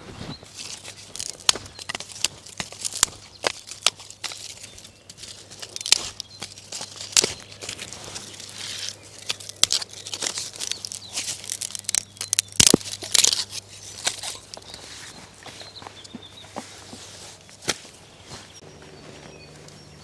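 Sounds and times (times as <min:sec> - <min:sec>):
dry twigs snapping: 0:00.4 - 0:16.3.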